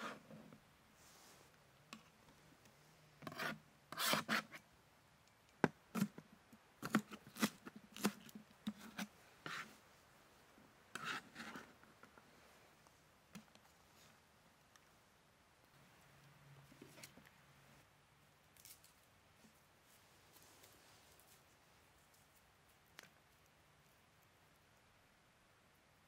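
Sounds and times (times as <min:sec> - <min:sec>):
scraping and rasping strokes: 0:03.2 - 0:04.6, 0:10.9 - 0:11.8.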